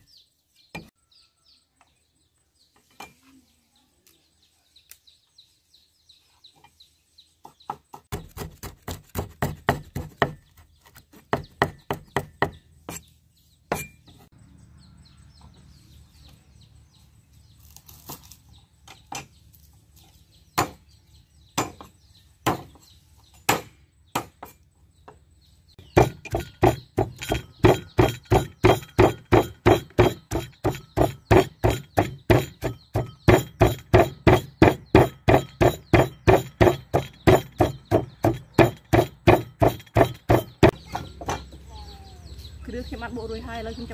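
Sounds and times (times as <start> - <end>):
pestle pounding in a mortar: 7.7 - 10.6, 11.2 - 12.6, 25.8 - 41.4
knife chopping on wooden board: 7.7 - 13.0, 26.0 - 41.4.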